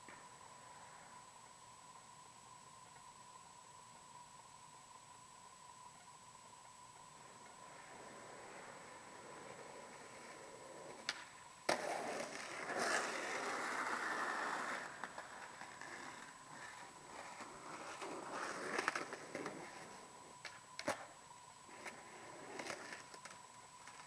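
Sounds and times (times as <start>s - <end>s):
skateboard wheels rolling on concrete: 5.8s - 24.0s
skateboard clacking on ground: 10.9s - 19.8s.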